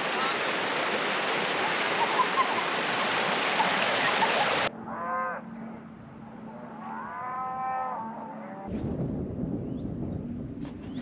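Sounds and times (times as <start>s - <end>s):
river rushing over stones: 0.0s - 4.7s
cattle mooing: 4.8s - 5.8s, 6.5s - 8.7s.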